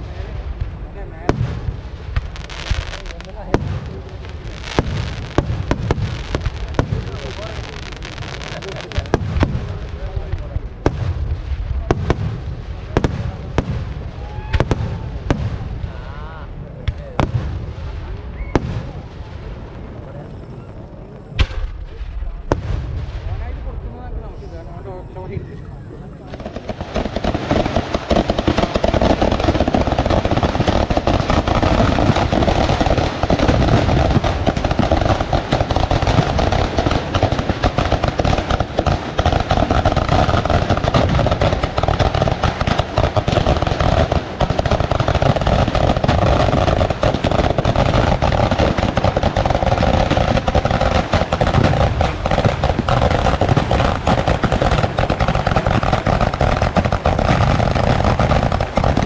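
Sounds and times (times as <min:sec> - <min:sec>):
firecrackers bursting: 0:00.0 - 0:59.0.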